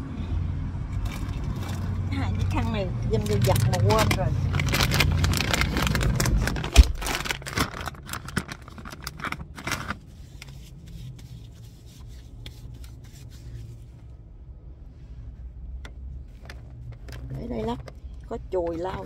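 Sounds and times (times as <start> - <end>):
paper wipe crinkling: 3.2 - 13.8.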